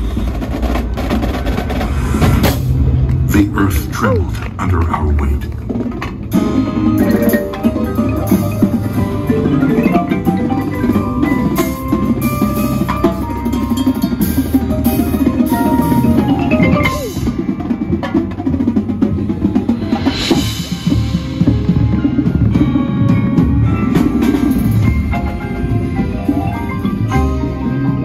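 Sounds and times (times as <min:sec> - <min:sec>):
drums and cymbals: 0:00.0 - 0:03.5, 0:05.6 - 0:28.0
marimbas and mallet keyboards: 0:06.3 - 0:28.0.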